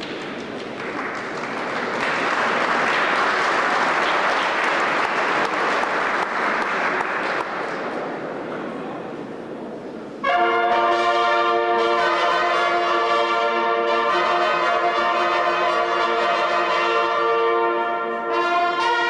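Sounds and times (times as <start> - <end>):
applause: 0.0 - 8.3
brass ensemble playing chords: 10.2 - 19.0.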